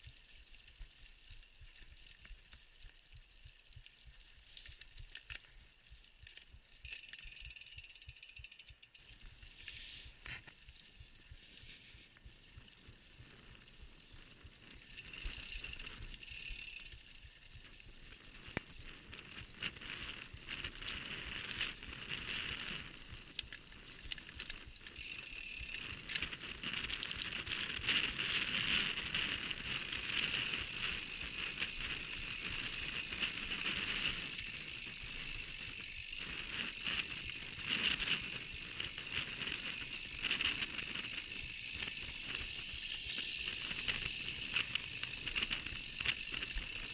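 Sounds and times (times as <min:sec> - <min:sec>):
bike tyres crunching on dirt: 0:00.0 - 0:46.9
bike parts rattling: 0:06.8 - 0:09.4, 0:29.6 - 0:46.9.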